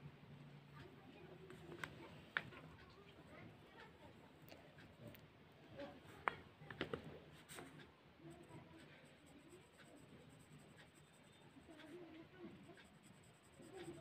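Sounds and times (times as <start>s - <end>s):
pencil ticks: 0.8s - 14.0s
pencil scratching on paper: 7.3s - 14.0s.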